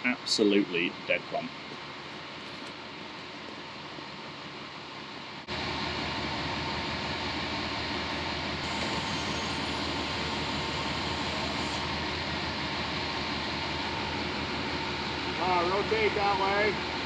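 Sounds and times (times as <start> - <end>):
truck engine running: 1.9 - 17.0.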